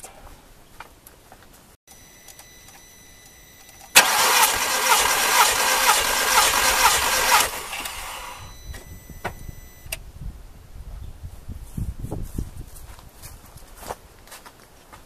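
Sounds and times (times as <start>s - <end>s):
engine starter cranking: 3.8s - 8.6s.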